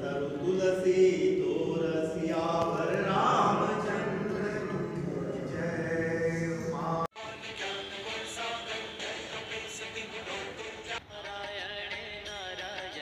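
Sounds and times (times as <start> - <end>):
group chanting a hymn: 0.0 - 11.0
music: 7.2 - 13.0.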